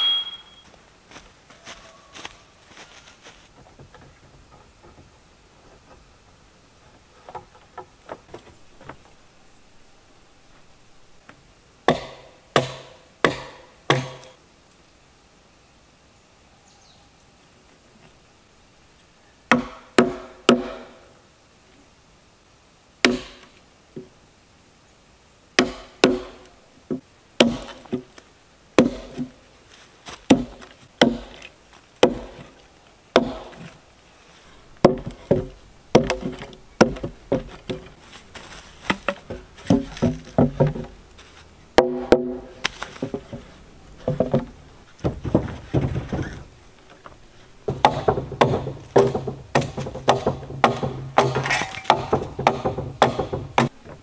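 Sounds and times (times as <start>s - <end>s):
hatchet chopping log: 11.9s - 14.4s, 19.5s - 21.0s, 23.0s - 23.5s, 25.6s - 26.4s, 27.4s - 28.1s, 28.8s - 29.3s, 30.3s - 31.4s, 32.0s - 32.4s, 33.2s - 33.6s, 34.8s - 37.9s, 41.8s - 43.2s, 47.7s - 53.8s.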